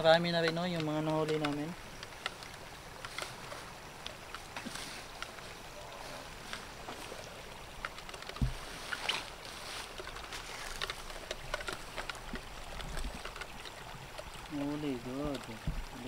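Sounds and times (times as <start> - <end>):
rustling grass and weeds: 0.0 - 16.0
small clicks: 0.1 - 5.4, 6.5 - 16.0
dull thump: 8.4 - 8.8, 15.6 - 15.9.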